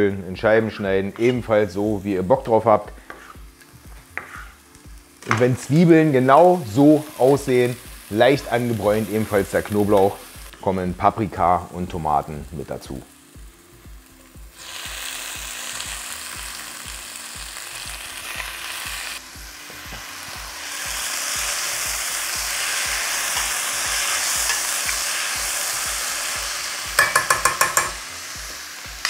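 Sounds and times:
vegetables sizzling in hot oil: 0.8s - 29.0s
metal spoon clicking against pot: 27.0s - 28.0s.

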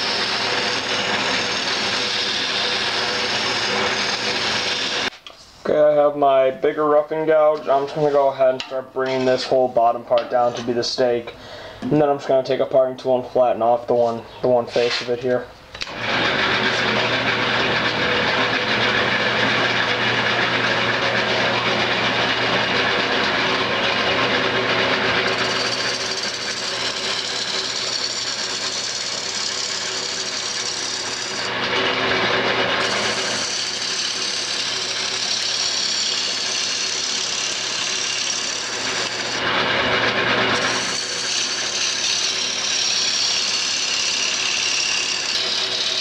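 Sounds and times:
wood lathe motor hum: 0.0s - 5.1s, 15.7s - 46.0s
turning tool cutting wood hiss: 0.0s - 5.4s, 15.8s - 46.0s.

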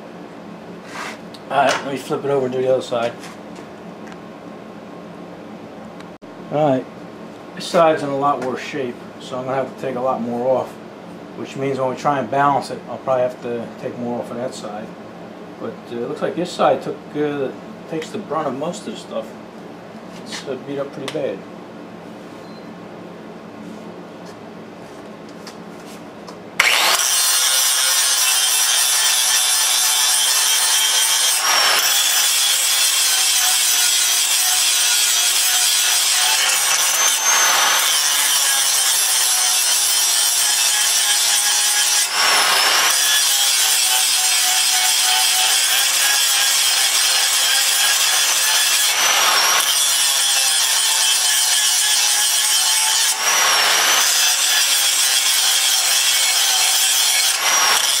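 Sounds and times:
angle grinder grinding steel: 26.6s - 58.0s.

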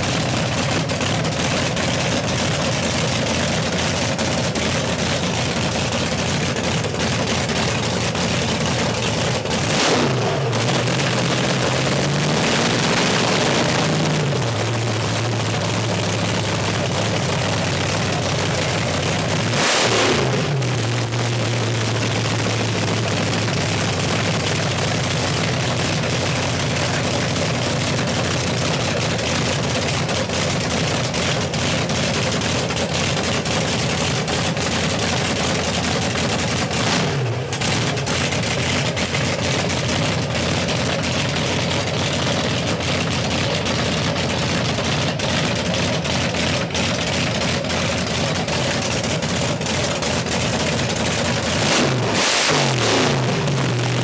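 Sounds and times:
engine idling with exhaust pops: 0.0s - 54.0s
engine revving: 9.5s - 16.8s, 19.2s - 24.8s, 36.5s - 40.2s, 51.0s - 54.0s.

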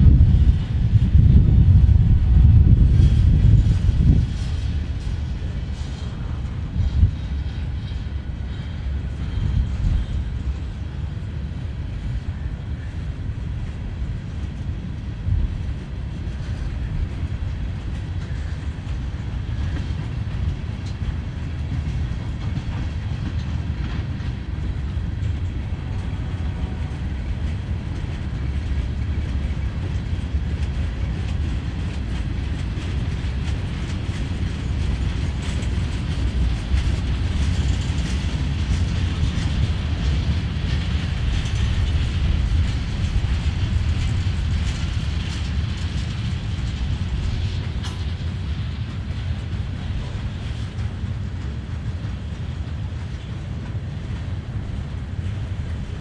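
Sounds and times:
train cars rolling on rails: 0.0s - 56.0s
clicking over rail joints: 3.0s - 56.0s.

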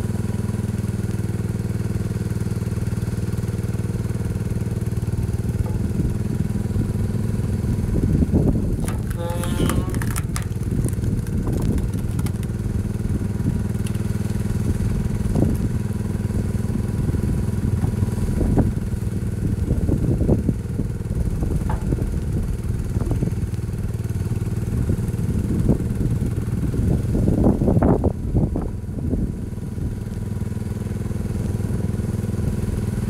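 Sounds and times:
tractor engine running: 0.0s - 33.0s
logs cracking as split: 8.6s - 15.9s.

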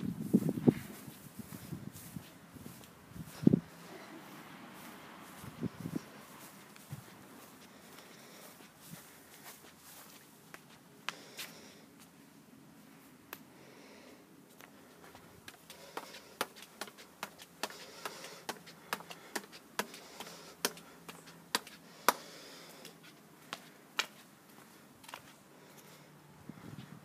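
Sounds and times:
footsteps on tiled stairs: 14.5s - 26.0s.

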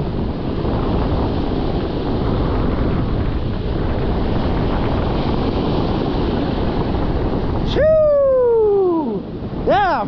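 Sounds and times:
surf breaking: 0.0s - 10.0s
wind on microphone: 0.0s - 10.0s.

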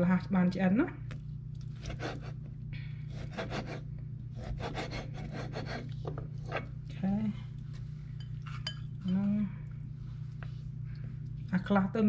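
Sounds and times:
knife sawing through ribs: 1.8s - 2.4s, 3.1s - 3.8s, 4.4s - 5.9s.

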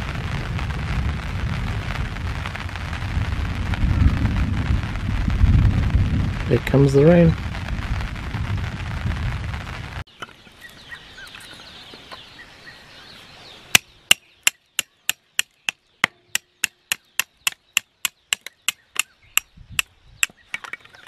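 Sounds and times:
rain: 0.0s - 10.1s
hatchet chopping wood: 13.8s - 20.4s.

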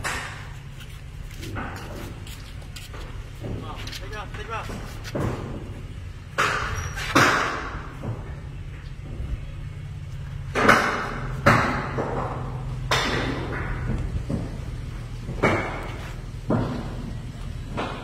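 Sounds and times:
engine running low: 0.0s - 18.0s
thumps and clanks from container: 10.6s - 17.1s.

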